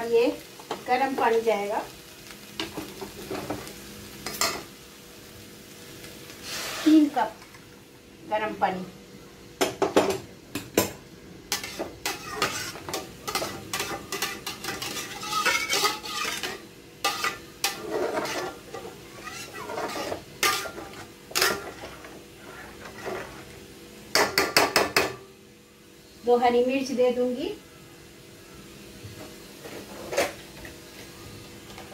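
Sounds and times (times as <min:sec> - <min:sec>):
spatula scraping metal pot: 0:11.5 - 0:23.5.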